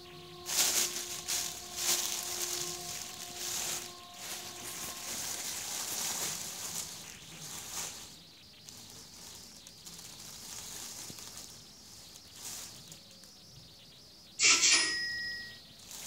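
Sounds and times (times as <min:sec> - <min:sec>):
plastic bag crinkling and rustling: 0:00.4 - 0:13.3, 0:15.8 - 0:16.0.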